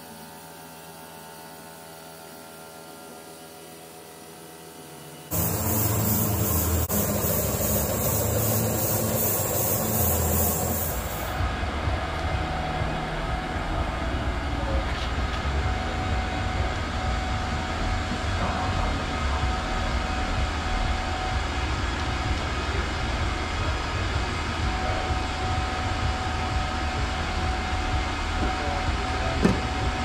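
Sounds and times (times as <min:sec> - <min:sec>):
milling machine cutting metal: 0:05.3 - 0:11.4.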